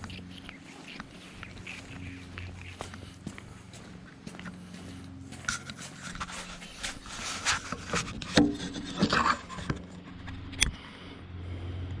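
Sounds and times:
rubbing on phone microphone: 5.4 - 10.5.

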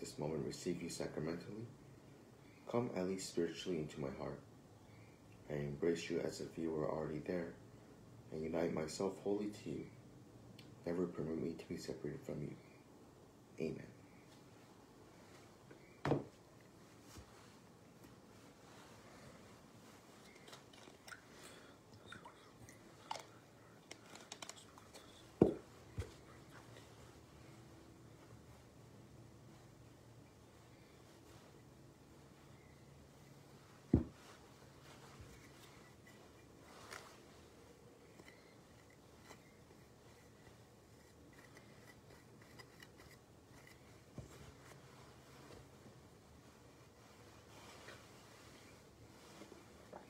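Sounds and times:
cloth rustling: 14.3 - 50.0
cloth rubbing on metal: 33.1 - 49.9.

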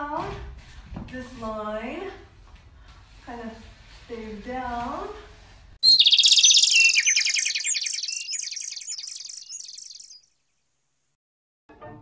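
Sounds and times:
high-pitched chirping trill: 5.8 - 10.2.

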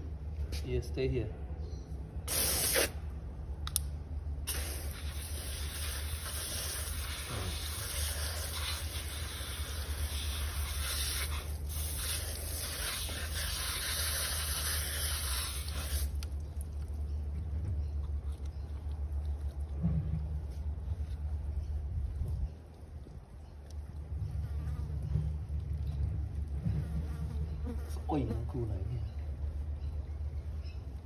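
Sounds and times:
water spraying from hose: 2.3 - 3.0, 4.4 - 16.6.

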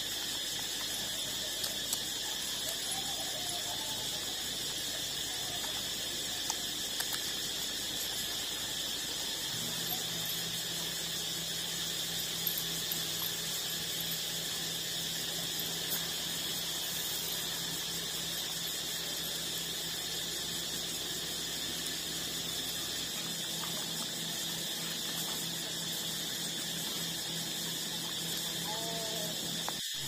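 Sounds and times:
high-pitched insect drone: 0.0 - 30.0.

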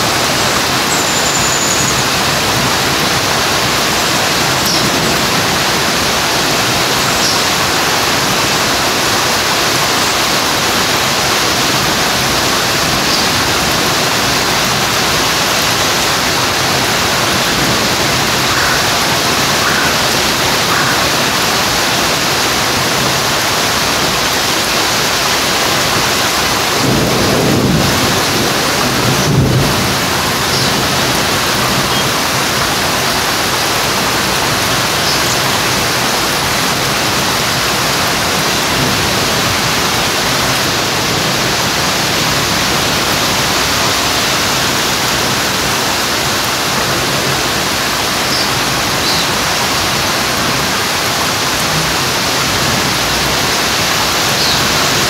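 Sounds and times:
heavy rain falling: 0.0 - 55.0
low rumble of thunder: 26.8 - 31.9.

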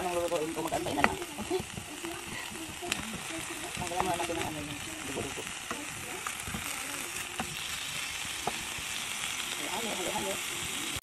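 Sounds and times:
meat sizzling in a pan: 0.0 - 11.0
spatula tapping and scraping pan: 0.6 - 6.7.

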